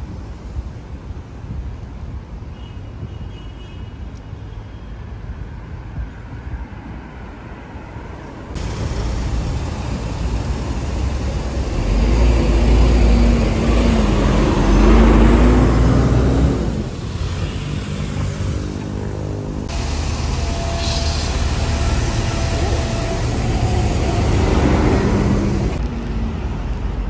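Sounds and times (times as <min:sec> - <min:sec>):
city road traffic: 0:00.0 - 0:27.0
heavy vehicle engine rumbling: 0:08.2 - 0:27.0.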